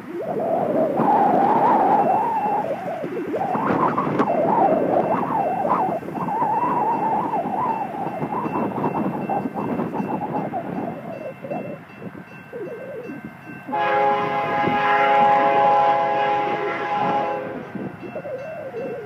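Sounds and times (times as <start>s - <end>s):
wind on microphone: 0.0s - 19.0s
railroad crossing bell ringing: 2.0s - 2.8s, 4.2s - 19.0s
locomotive air horn: 13.7s - 18.0s.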